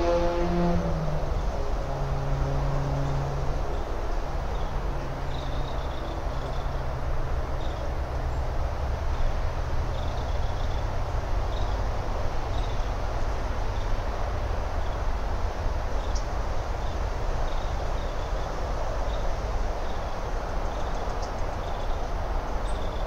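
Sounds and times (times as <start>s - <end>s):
low hum: 0.0s - 15.4s
continuous rushing noise: 0.0s - 23.0s.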